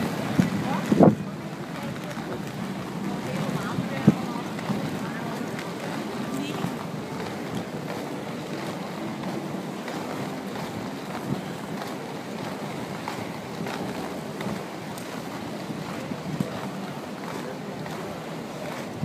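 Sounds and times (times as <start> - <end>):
wind rushing over microphone: 0.0 - 1.4
skate wheels rolling on asphalt: 0.0 - 19.0.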